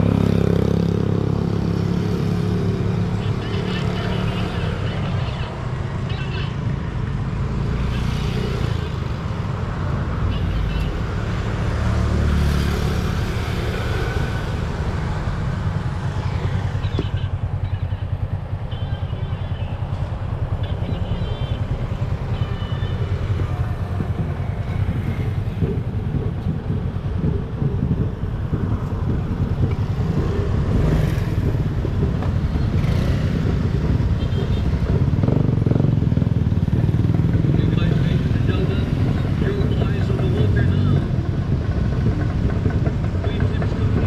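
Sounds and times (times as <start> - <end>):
motorcycles passing: 0.0 - 44.0
road traffic: 0.0 - 44.0.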